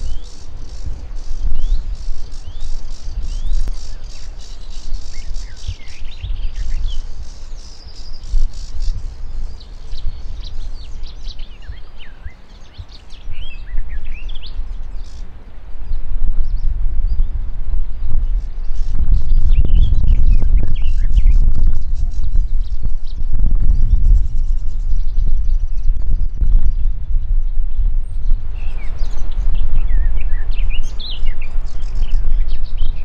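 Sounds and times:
low rumble: 15.8 - 30.8.

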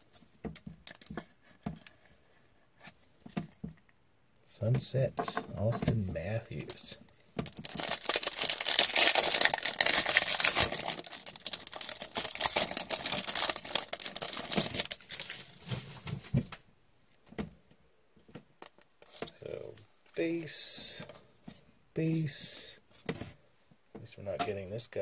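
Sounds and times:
cards rustling: 5.3 - 16.1
foil wrapper tearing and crinkling: 7.4 - 15.7.

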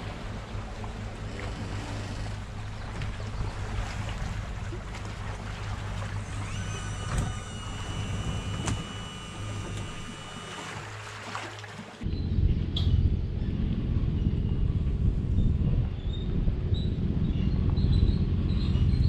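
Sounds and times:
outboard motor humming: 0.0 - 19.0
water and wind noise: 0.0 - 19.0
thin high whine: 6.2 - 11.1.

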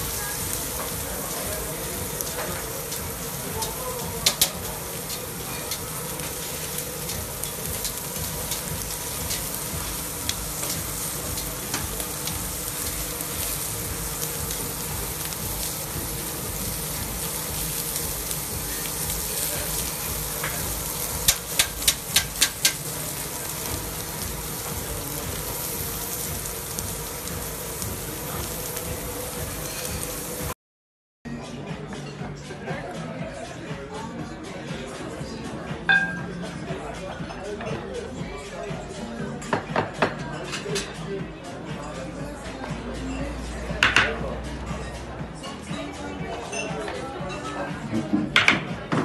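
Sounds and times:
steaks sizzling on a grill: 0.0 - 30.6.

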